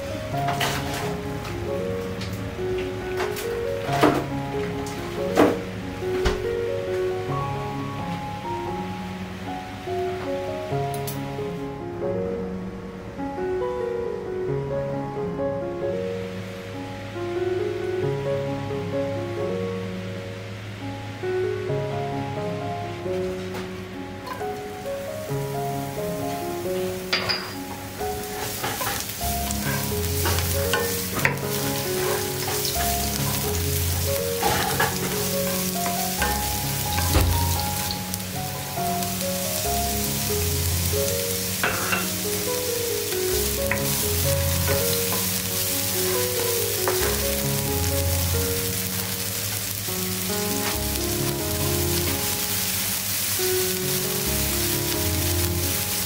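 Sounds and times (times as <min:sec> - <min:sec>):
onion sizzling in oil: 0:00.0 - 0:06.0, 0:24.2 - 0:56.0
soft background music: 0:00.0 - 0:56.0
spatula stirring and scraping: 0:28.3 - 0:36.4.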